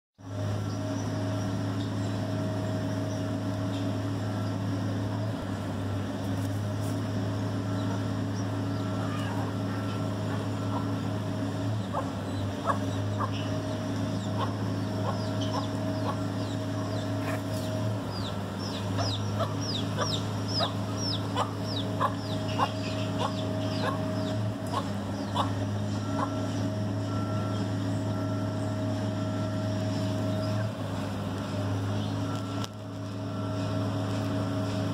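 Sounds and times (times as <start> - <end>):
low mechanical hum: 0.2 - 34.9
chickens clucking: 7.7 - 27.8.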